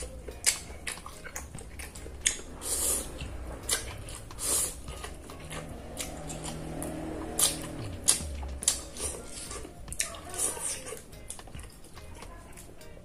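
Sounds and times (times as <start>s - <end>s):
chewing: 0.0s - 13.0s
wet mouth smacks: 0.4s - 2.4s
noodles slurping: 0.4s - 11.8s.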